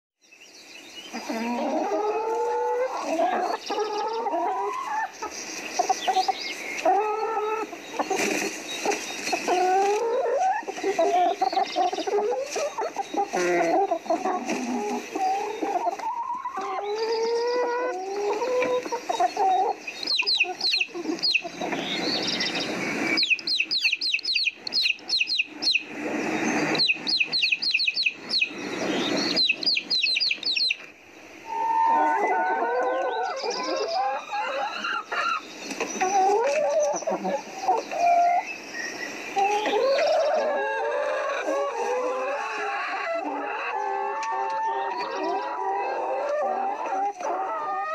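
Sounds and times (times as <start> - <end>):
chickens clucking: 1.0 - 47.9
rapid high chirping: 19.1 - 30.8.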